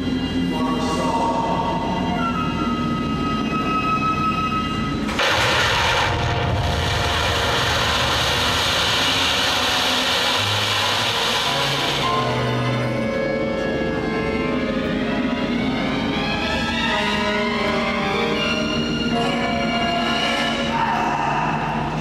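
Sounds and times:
background music: 0.0s - 22.0s
loud rushing hiss of stage effects: 5.1s - 13.0s.

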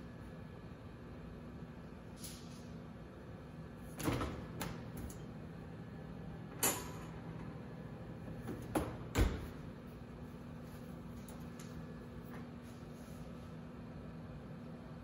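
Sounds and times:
oven door opening with knock: 8.4s - 9.6s
oven door shutting thump: 8.4s - 9.6s.

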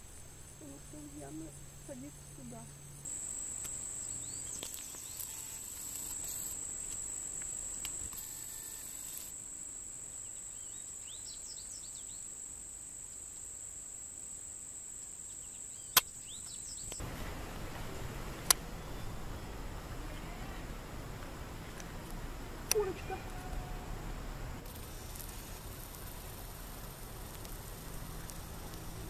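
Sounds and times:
insects trilling: 0.0s - 29.0s
bird chirps: 4.0s - 5.6s, 15.3s - 17.0s
sharp click: 15.9s - 17.0s.

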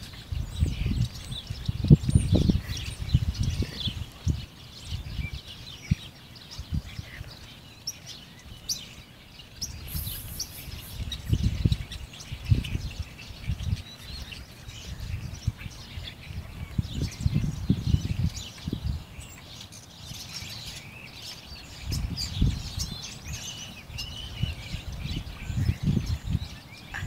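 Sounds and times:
high bird chirps: 9.4s - 16.4s.

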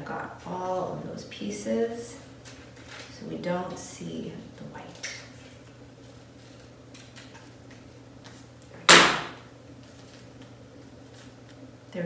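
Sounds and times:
paper rustling: 4.9s - 8.5s, 9.8s - 11.7s.

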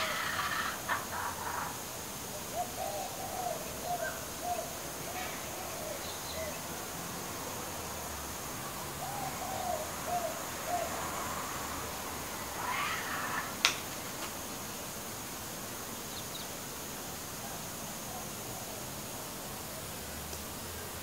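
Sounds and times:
baby kookaburra gurgling call: 0.0s - 1.8s, 12.5s - 13.6s.

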